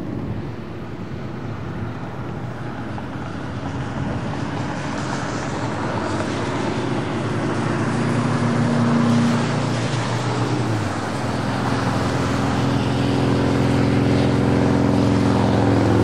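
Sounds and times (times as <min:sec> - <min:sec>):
low engine hum: 0:00.0 - 0:16.0
rushing road noise: 0:00.0 - 0:16.0.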